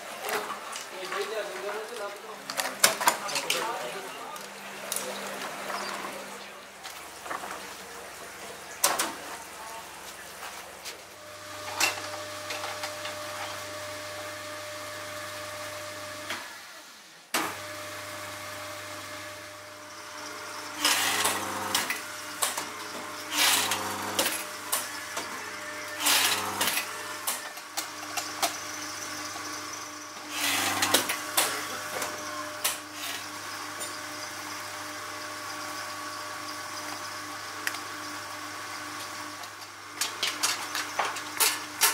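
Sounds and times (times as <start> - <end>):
factory machinery humming: 16.2 - 41.9.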